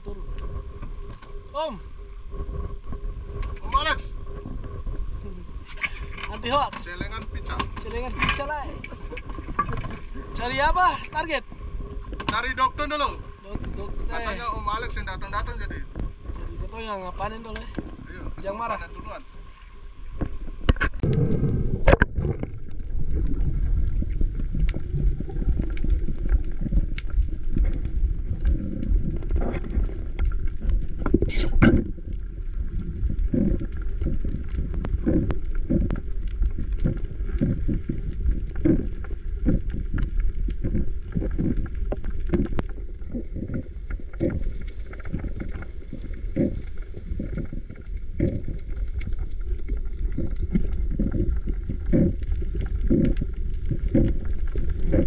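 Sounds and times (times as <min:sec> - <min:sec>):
underwater rumble of moving water: 0:00.0 - 0:55.0.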